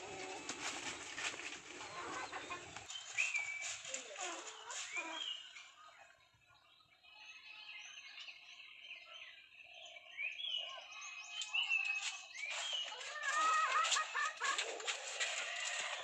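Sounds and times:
chicks chirping: 0.0 - 5.7, 11.4 - 16.0
chickens clucking: 0.0 - 5.8, 11.8 - 16.0.

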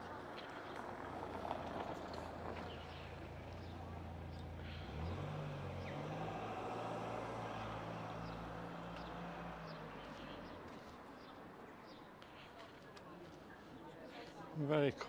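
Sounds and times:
vehicle engine humming: 0.0 - 11.5
street background noise: 0.0 - 15.0.

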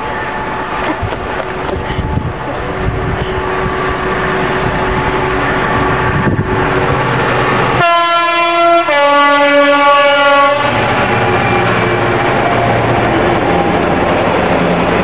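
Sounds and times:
freight train rolling: 0.0 - 15.0
two-tone train horn: 7.8 - 12.2.

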